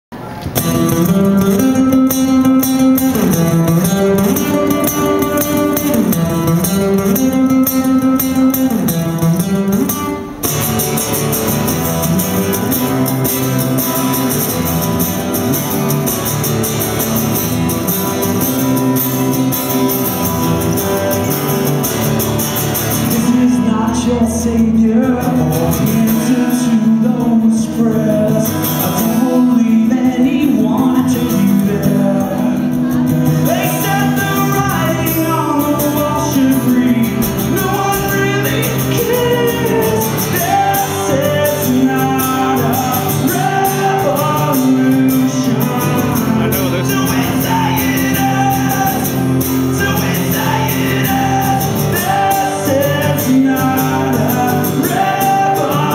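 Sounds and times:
acoustic guitar through pa: 0:00.1 - 0:55.9
man singing: 0:00.7 - 0:10.3, 0:22.8 - 0:55.9.

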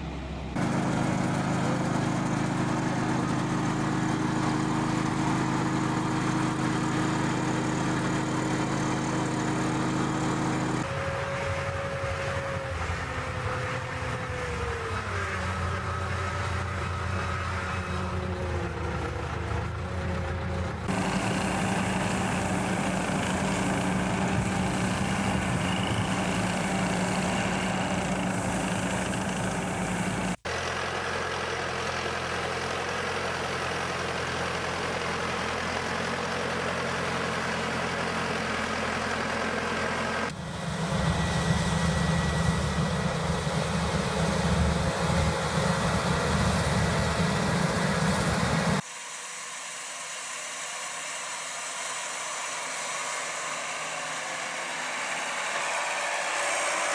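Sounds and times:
tractor engines running: 0:00.0 - 0:48.8, 0:50.2 - 0:56.9
low hum: 0:40.3 - 0:48.8.

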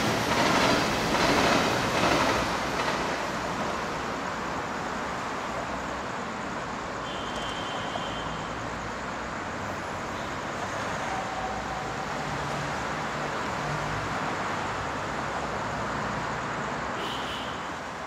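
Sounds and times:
city road traffic drone: 0:00.0 - 0:18.0.

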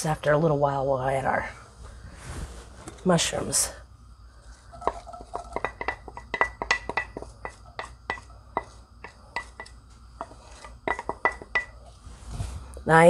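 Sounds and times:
wooden spatula tapping ceramic bowl: 0:04.8 - 0:11.8.

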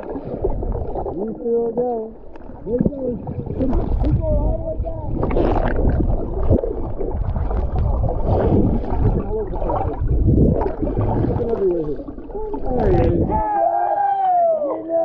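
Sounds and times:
underwater rushing and bubbling: 0:00.0 - 0:13.6
deep rumble: 0:02.6 - 0:13.4.

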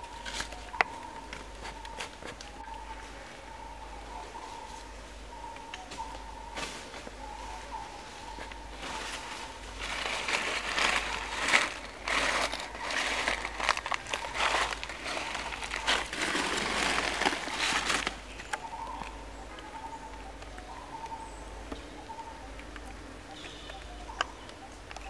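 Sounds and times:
crackling rustling clicks: 0:09.8 - 0:20.7.

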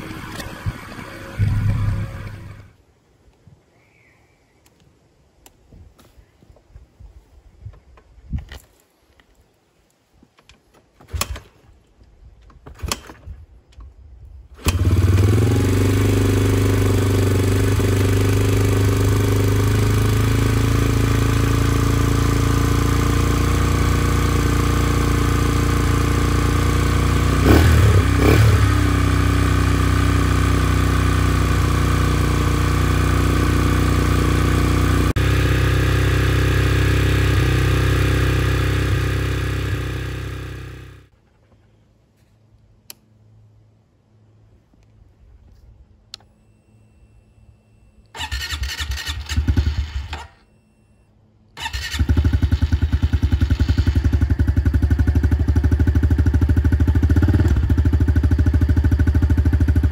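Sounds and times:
motorcycle engine idling: 0:00.0 - 0:02.8, 0:14.7 - 0:41.2, 0:51.6 - 0:59.9
motorcycle engine revving: 0:00.0 - 0:02.8, 0:14.6 - 0:41.1, 0:48.2 - 0:50.4, 0:51.6 - 0:59.9.

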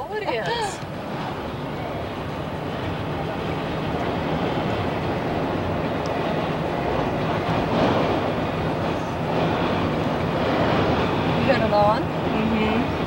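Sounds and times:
car road noise: 0:00.0 - 0:13.0.

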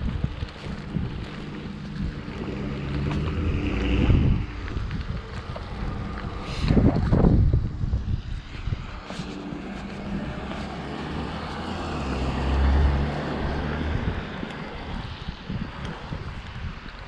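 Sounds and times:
car passing on wet road: 0:00.0 - 0:17.0
wind buffeting microphone: 0:00.0 - 0:17.0.

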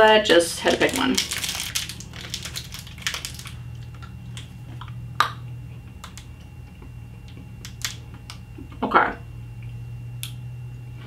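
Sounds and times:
wrapper crinkling: 0:00.0 - 0:04.7.

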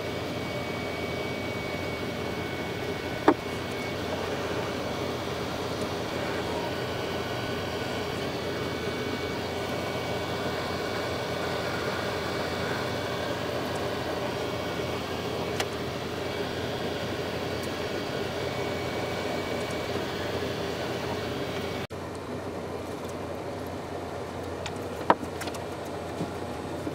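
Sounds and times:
hot air gun blower running: 0:00.0 - 0:23.3.

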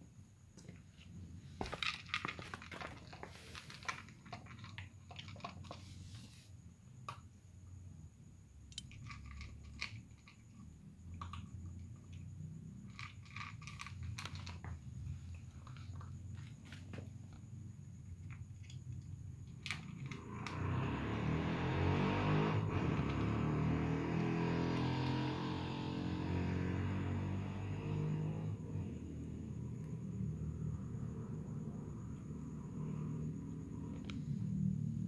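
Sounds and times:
cats crunching dry kibble: 0:01.6 - 0:05.8, 0:12.8 - 0:14.8.

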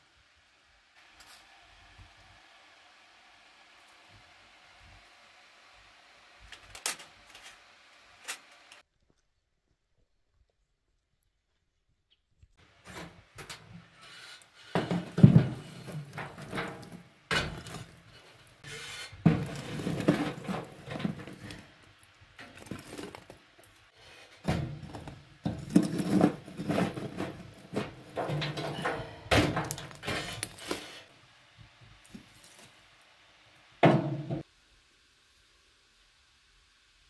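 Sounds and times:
poker scraping coals in stove: 0:12.8 - 0:31.3.

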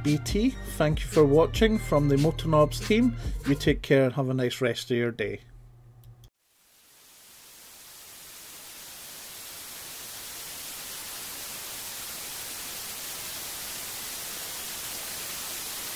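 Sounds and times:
television static hiss: 0:06.4 - 0:15.9.

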